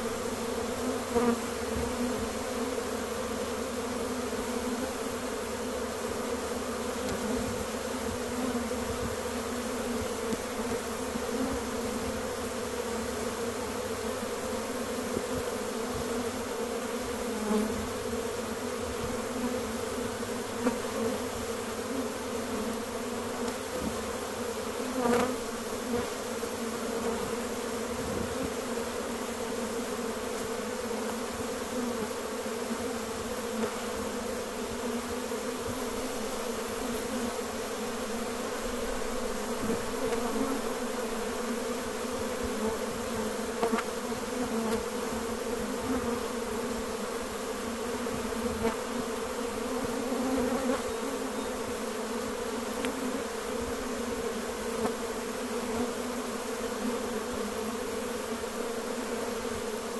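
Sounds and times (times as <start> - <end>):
bee swarm buzzing: 0.0 - 59.9
single bee buzzing past: 0.0 - 59.9.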